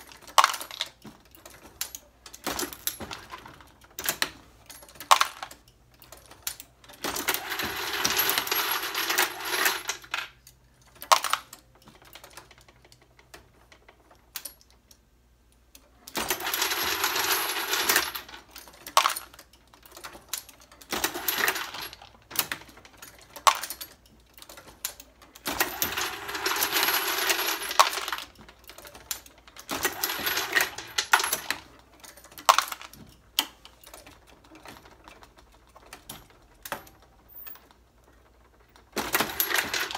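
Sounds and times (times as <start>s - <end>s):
metal cases rattling and clinking: 16.1s - 39.9s.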